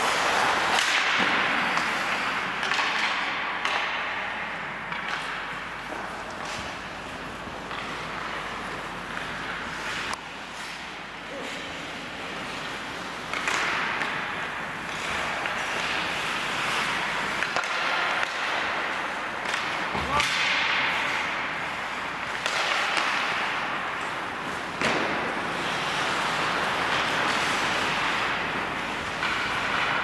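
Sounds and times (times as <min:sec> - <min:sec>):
hockey stick slaps: 0:00.0 - 0:11.0, 0:11.6 - 0:30.0
skates scraping on ice: 0:00.0 - 0:30.0.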